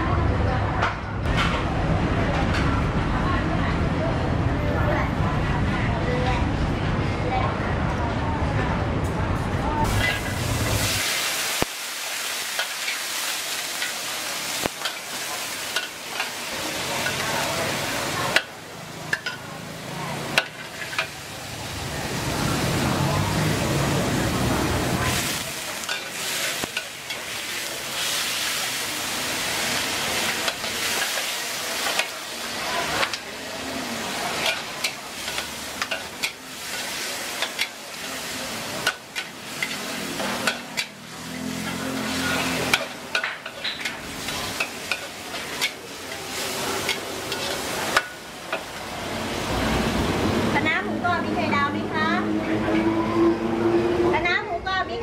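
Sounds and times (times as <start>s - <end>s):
wok sizzling: 9.8s - 53.8s
metal spatula scraping a wok: 9.9s - 11.1s, 34.3s - 48.2s.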